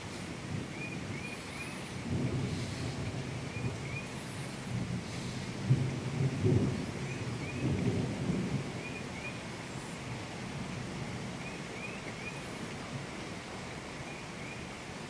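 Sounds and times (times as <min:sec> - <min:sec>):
thunder rumbling: 0:00.0 - 0:13.1
heavy rain: 0:00.0 - 0:15.0.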